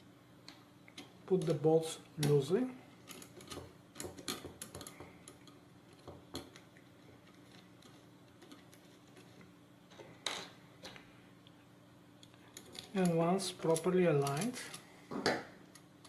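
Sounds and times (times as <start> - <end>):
small metal and plastic parts clicking: 3.0 - 9.3.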